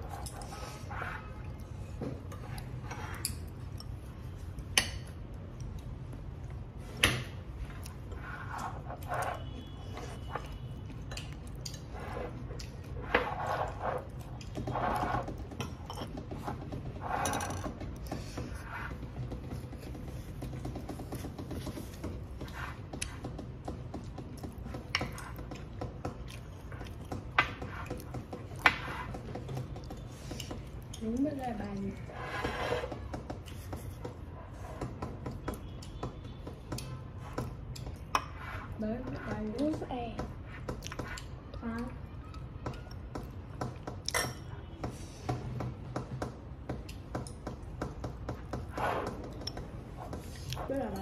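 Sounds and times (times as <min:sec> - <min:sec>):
person chewing food: 0:07.6 - 0:13.1, 0:21.6 - 0:28.6, 0:40.7 - 0:41.5
person chewing: 0:24.3 - 0:28.6.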